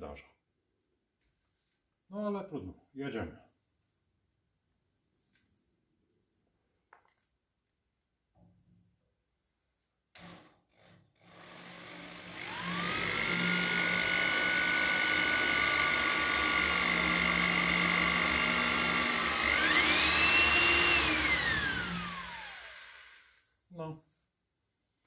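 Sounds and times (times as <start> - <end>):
electric drill boring through steel: 10.2 - 23.5.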